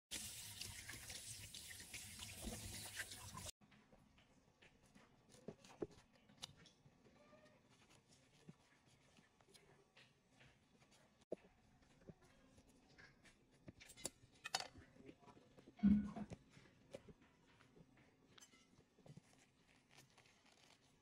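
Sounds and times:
tap water splashing: 0.1s - 3.5s.

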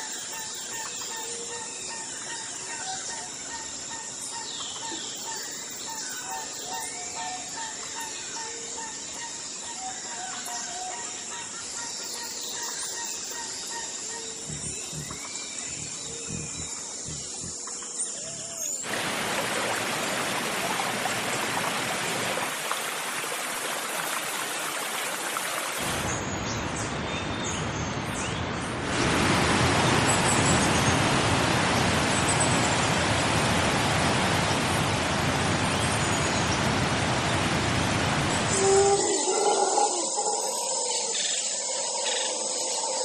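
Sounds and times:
faint high bird chirps: 12.1s - 18.8s.

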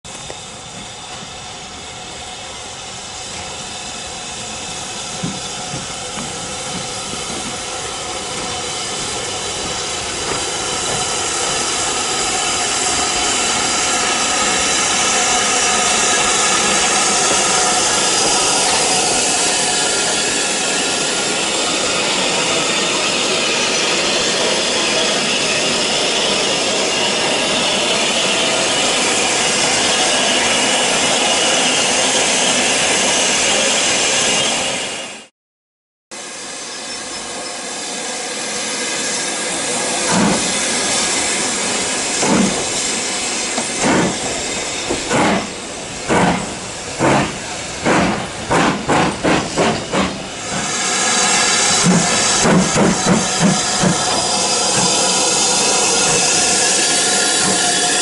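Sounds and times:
steam locomotive hissing: 0.1s - 35.3s, 36.2s - 58.0s.

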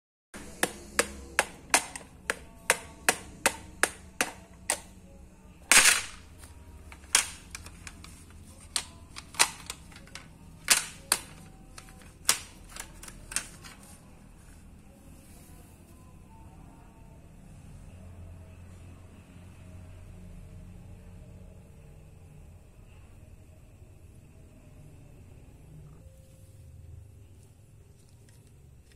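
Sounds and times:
fingers tapping plastic case: 0.4s - 4.9s, 7.0s - 13.8s.

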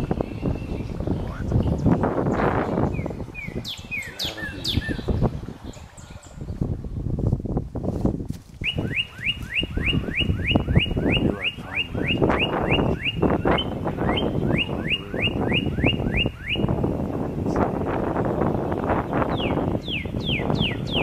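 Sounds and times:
quick down-slurred bird chirps: 8.6s - 16.8s.

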